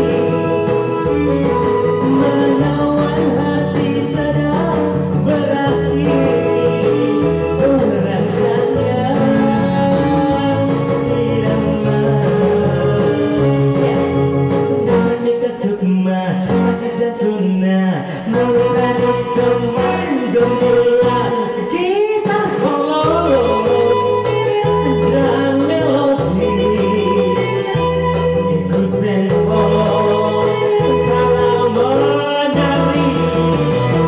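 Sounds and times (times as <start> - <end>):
karaoke backing music with guitar: 0.0 - 34.0
woman singing into microphone: 0.0 - 34.0.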